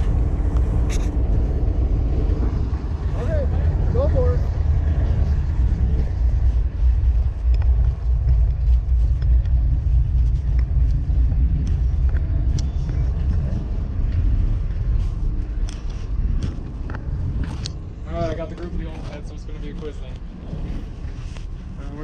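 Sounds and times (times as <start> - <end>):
deep engine rumble: 0.0 - 22.0
scattered clicks: 7.0 - 14.6, 15.3 - 17.8.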